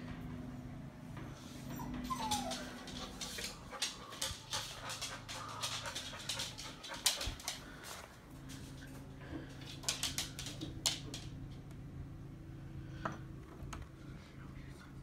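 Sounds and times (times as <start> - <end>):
dog whimpering: 1.7 - 3.2.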